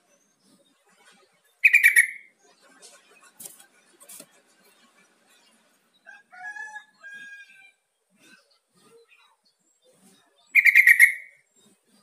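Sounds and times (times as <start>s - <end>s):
bird calling: 1.6s - 2.3s, 10.6s - 11.4s.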